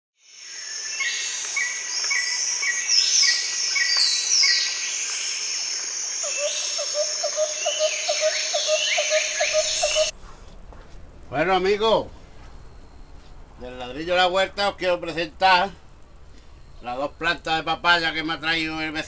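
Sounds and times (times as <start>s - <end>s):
insects: 0.2s - 10.1s, 11.3s - 19.0s
birds chirping and whistling: 0.6s - 10.1s.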